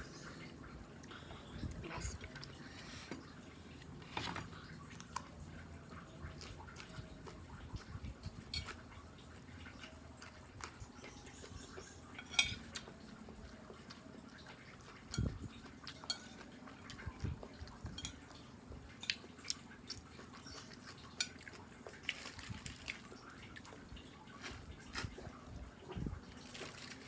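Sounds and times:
metal spoon scraping on a plate: 0:12.1 - 0:12.7.

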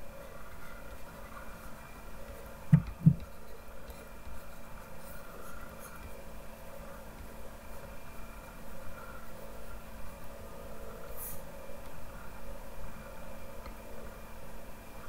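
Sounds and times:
faint steady hum: 0:00.0 - 0:15.0
stylus scratching on tablet: 0:00.2 - 0:11.4
low knocks: 0:02.7 - 0:03.3.

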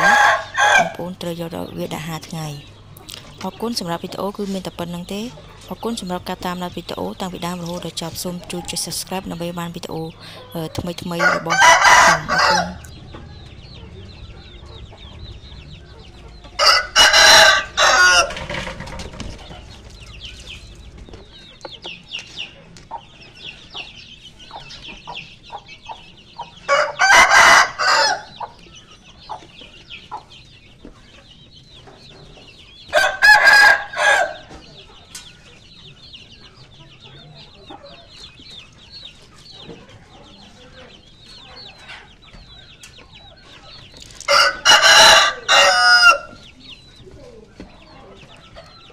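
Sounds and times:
roosters crowing: 0:00.0 - 0:01.4, 0:03.6 - 0:22.1, 0:26.5 - 0:28.6, 0:32.9 - 0:34.8, 0:44.0 - 0:46.8.

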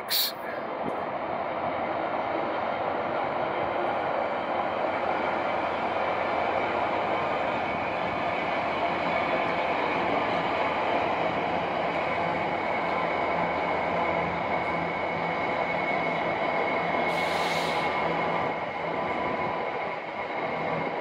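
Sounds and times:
freight train rumbling past: 0:00.0 - 0:21.0
brief hiss: 0:00.1 - 0:00.4, 0:17.1 - 0:17.9.

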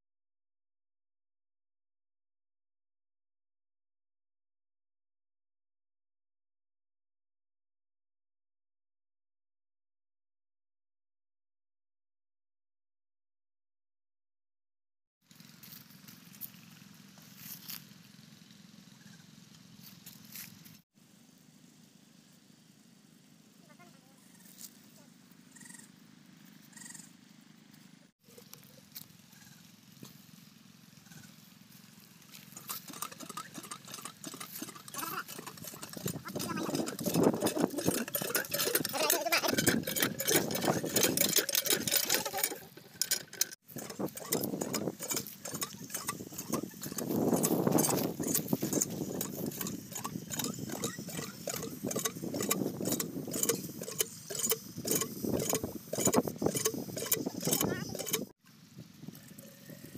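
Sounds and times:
hand pump clanking: 0:32.4 - 0:58.4.

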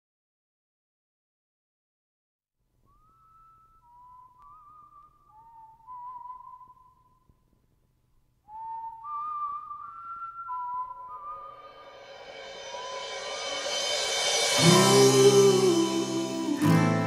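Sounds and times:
whistled melody in harmony: 0:02.9 - 0:07.2, 0:08.5 - 0:17.0.

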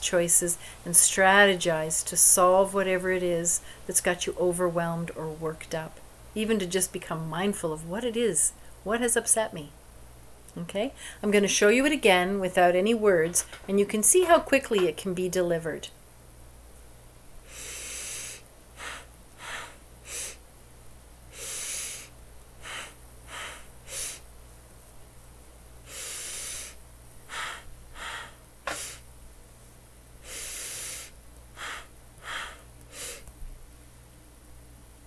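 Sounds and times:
person breathing: 0:00.6 - 0:00.9, 0:03.6 - 0:03.9, 0:10.9 - 0:11.2, 0:17.4 - 0:20.4, 0:21.3 - 0:24.3, 0:25.8 - 0:29.0, 0:30.2 - 0:33.3.

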